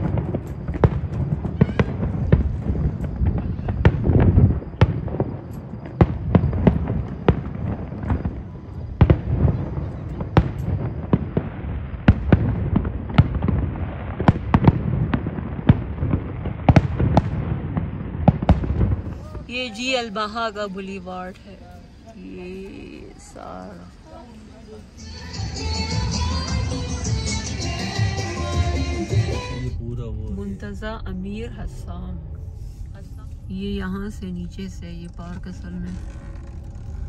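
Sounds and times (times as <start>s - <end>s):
murmur of voices: 19.1s - 26.5s
low rumble: 25.3s - 37.0s.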